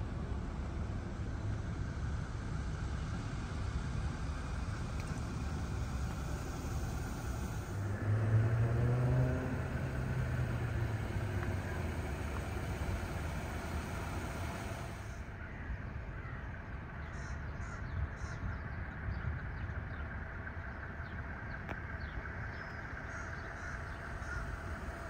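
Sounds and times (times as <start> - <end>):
low rumble of traffic: 0.0 - 25.0
car driving by: 5.2 - 15.2.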